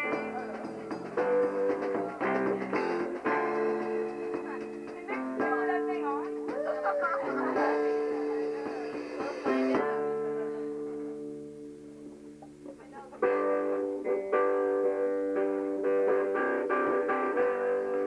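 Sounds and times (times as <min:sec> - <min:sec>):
guitar strumming chords: 0:00.0 - 0:18.0
guitar chord ringing: 0:07.3 - 0:18.0.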